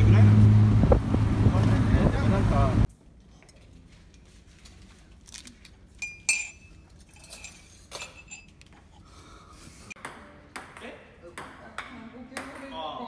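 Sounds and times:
mugs and spoon clinking: 0:06.0 - 0:08.8.

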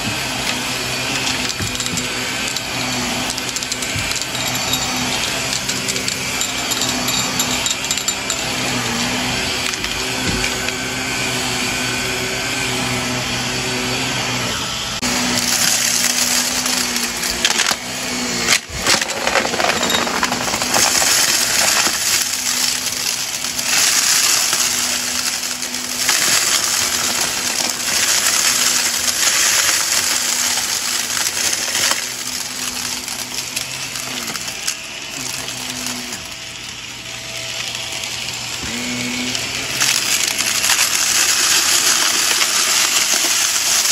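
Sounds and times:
debris crunching and rattling: 0:00.0 - 0:10.7, 0:15.1 - 0:43.9
vacuum cleaner motor drone: 0:00.0 - 0:43.9.

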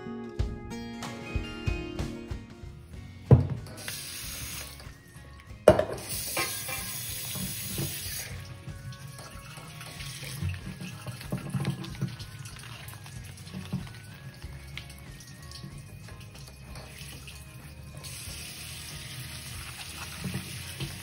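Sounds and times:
tap running into sink: 0:05.7 - 0:08.4, 0:09.1 - 0:17.3, 0:19.7 - 0:21.0.

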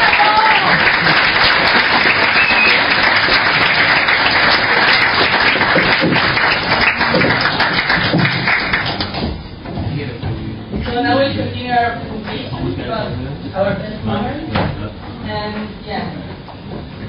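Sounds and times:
audience applauding: 0:00.0 - 0:09.3.

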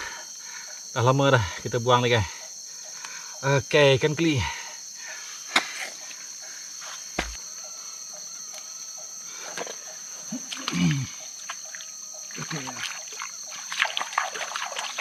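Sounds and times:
insects droning: 0:00.0 - 0:15.0
water splashes: 0:11.7 - 0:15.0.

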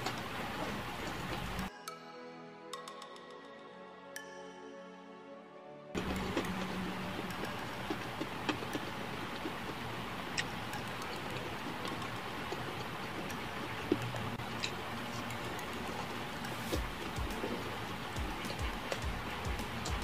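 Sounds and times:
chewing crispy fried chicken: 0:06.0 - 0:20.0
steady hiss: 0:06.0 - 0:20.0.

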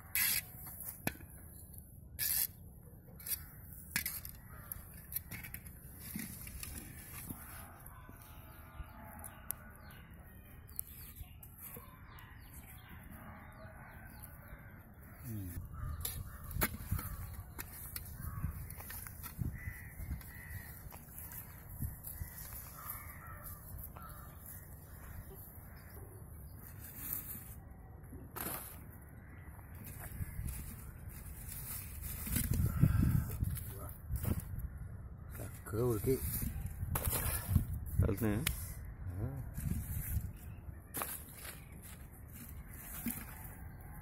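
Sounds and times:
crows cawing: 0:14.4 - 0:26.2, 0:32.4 - 0:35.6.

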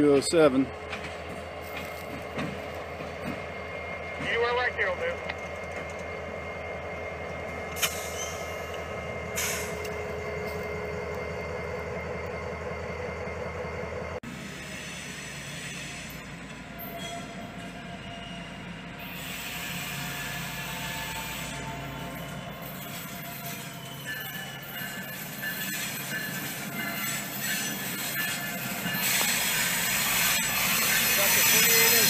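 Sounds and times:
locomotive engine throbbing: 0:00.0 - 0:15.2
freight train wheel hiss: 0:07.7 - 0:10.0, 0:14.3 - 0:16.4, 0:19.0 - 0:23.7, 0:25.1 - 0:32.0.

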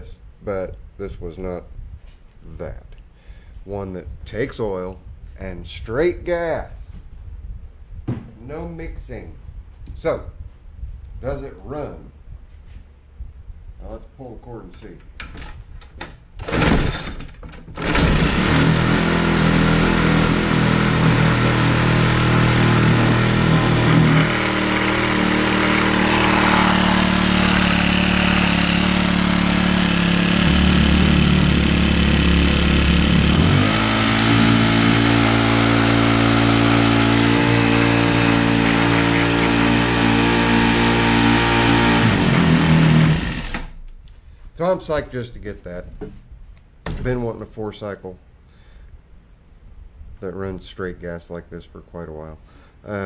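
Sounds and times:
recoil cord yank: 0:15.2 - 0:19.4
small engine running: 0:17.8 - 0:43.8.

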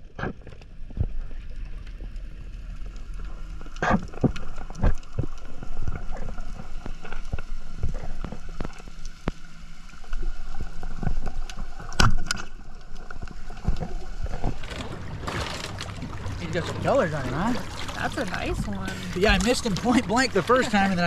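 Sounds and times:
underwater clicks and knocks: 0:03.6 - 0:09.4, 0:10.1 - 0:20.6.

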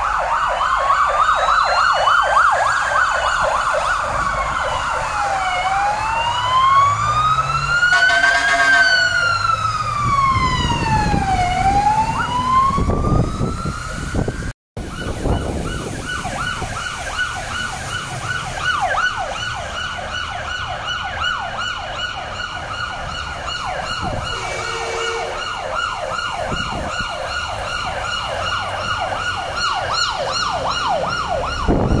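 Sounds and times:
siren wailing: 0:00.0 - 0:32.0
siren yelping: 0:00.0 - 0:32.0
horn blasts: 0:07.9 - 0:09.3, 0:24.2 - 0:25.5.

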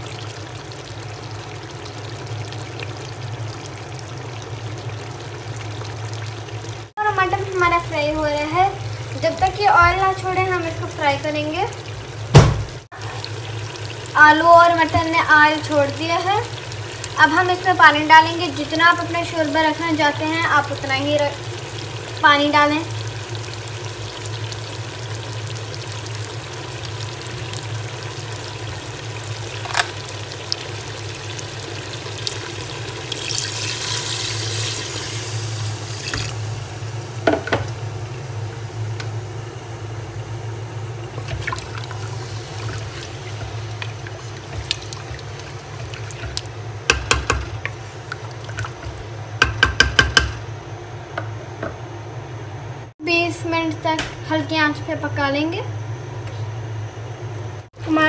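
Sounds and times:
water pouring into a pot: 0:00.0 - 0:06.9, 0:11.8 - 0:36.7, 0:41.0 - 0:49.2.

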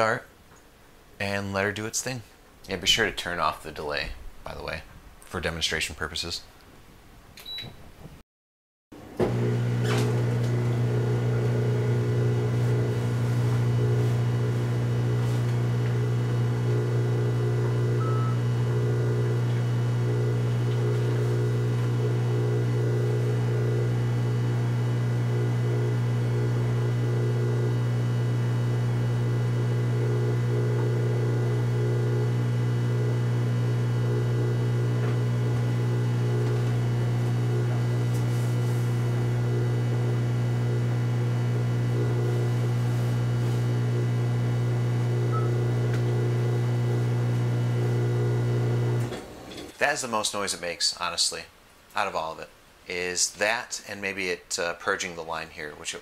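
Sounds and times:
dishwasher humming: 0:09.0 - 0:49.8.

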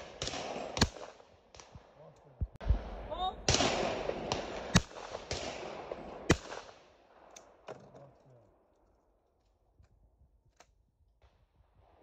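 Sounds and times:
shotgun firing: 0:00.0 - 0:01.8, 0:02.6 - 0:06.9.

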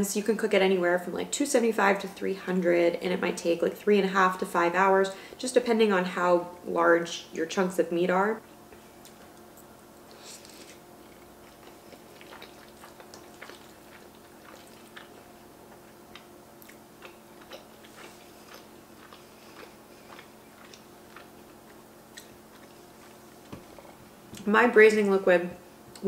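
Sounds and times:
steady faint hum: 0:00.0 - 0:26.0
person chewing with mouth clicks: 0:08.7 - 0:23.8.

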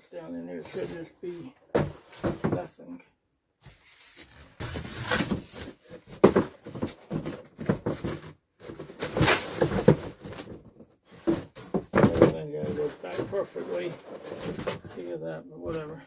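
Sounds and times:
cardboard scraping and rustling: 0:03.6 - 0:15.1
knocks on cardboard box: 0:06.2 - 0:08.3.

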